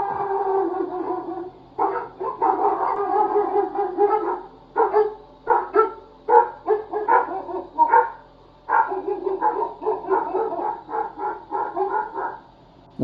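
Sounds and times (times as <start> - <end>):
dog barking: 0.1 - 12.5.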